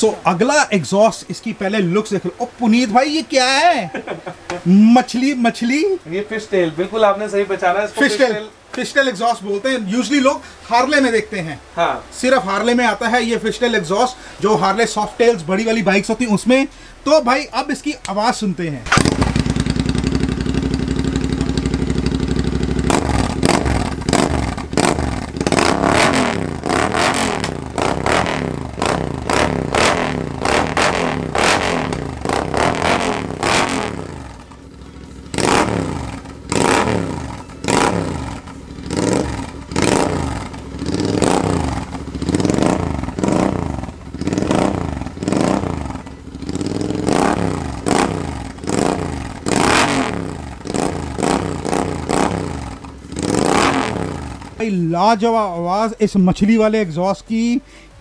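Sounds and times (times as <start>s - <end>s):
motorcycle engine revving: 18.8s - 54.8s.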